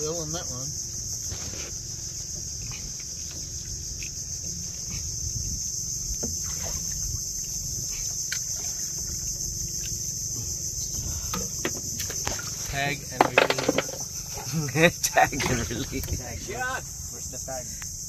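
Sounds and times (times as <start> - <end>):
high-pitched insect chorus: 0.0 - 18.0.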